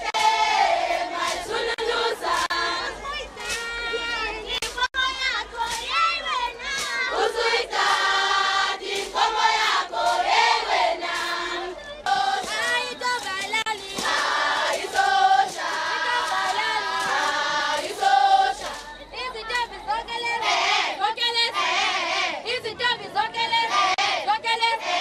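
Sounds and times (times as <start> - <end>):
group of voices singing: 0.0 - 25.0.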